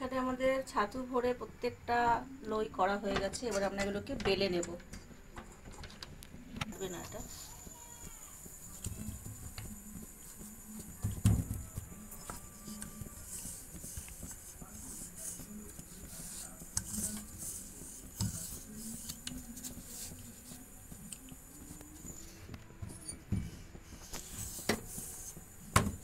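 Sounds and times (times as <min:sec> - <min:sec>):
rolling pin rolling dough: 0:06.4 - 0:26.0.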